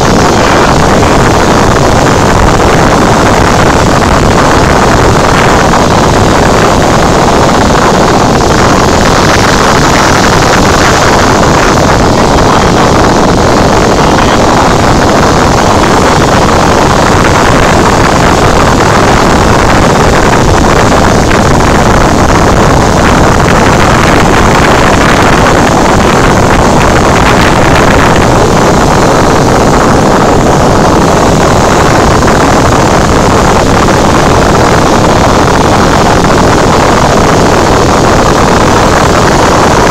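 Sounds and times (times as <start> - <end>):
air rushing over airframe: 0.0 - 39.9
aircraft engine and propeller: 0.0 - 39.9.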